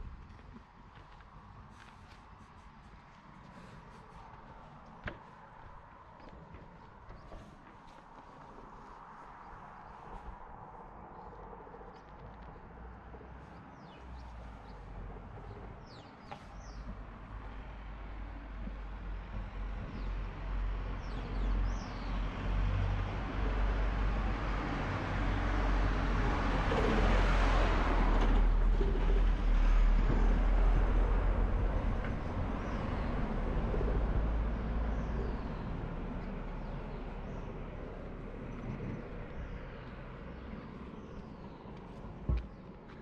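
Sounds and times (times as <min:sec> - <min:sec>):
birds chirping: 0:34.4 - 0:43.0.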